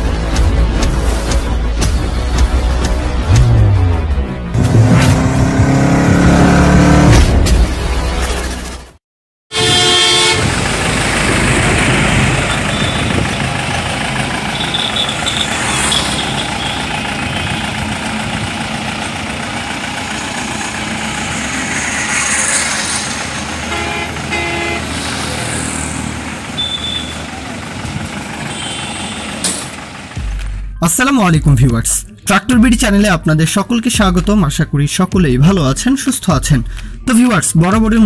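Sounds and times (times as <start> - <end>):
roadside traffic noise: 0.0 - 38.0
vehicle horns tooting: 9.5 - 10.6, 12.3 - 13.5, 14.4 - 17.9, 23.6 - 25.2, 26.4 - 29.8.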